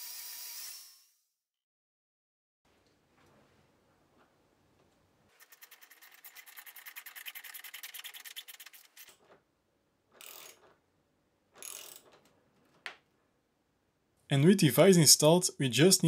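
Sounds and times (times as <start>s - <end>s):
socket ratchet clicking rapidly: 11.6s - 12.1s.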